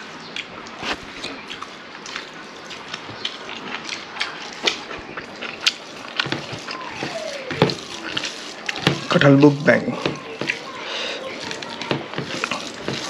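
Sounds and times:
mouth smacks while eating: 0.3 - 6.3.

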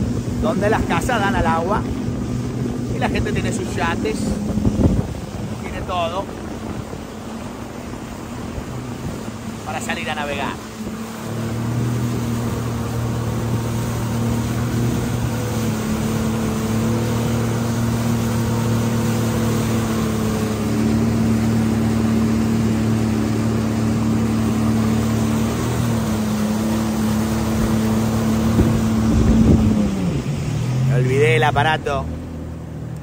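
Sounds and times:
jet ski engine: 0.0 - 33.0
water rushing: 0.0 - 33.0
wind: 0.0 - 33.0.

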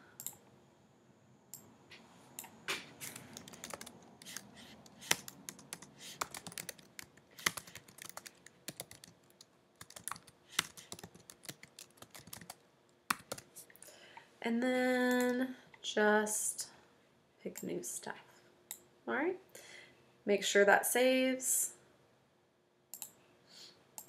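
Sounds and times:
keyboard typing: 2.4 - 13.5.

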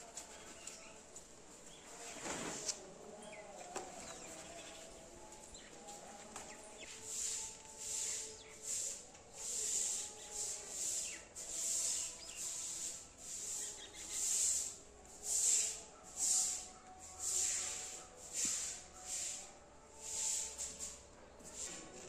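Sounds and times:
hand smoothing wet mortar: 6.9 - 22.0.

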